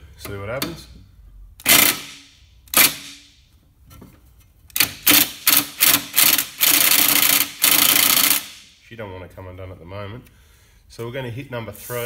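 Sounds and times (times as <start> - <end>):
impact wrench hammering: 1.6 - 3.3, 4.7 - 8.7.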